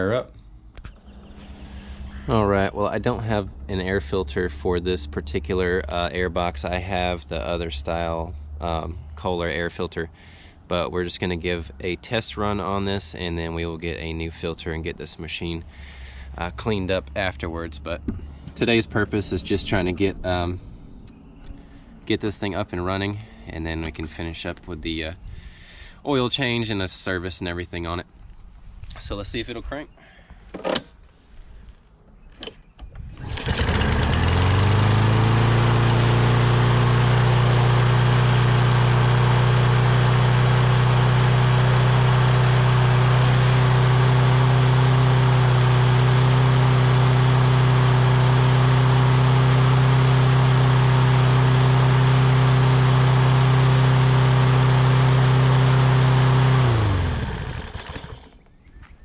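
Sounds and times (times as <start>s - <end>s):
lawn mower engine running: 33.0s - 58.4s.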